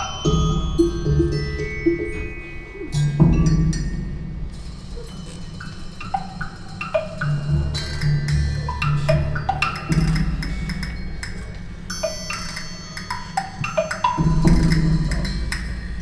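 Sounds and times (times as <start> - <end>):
bright ringing tone: 0.0 - 4.0, 10.5 - 15.3
pitched percussion notes: 0.0 - 16.0.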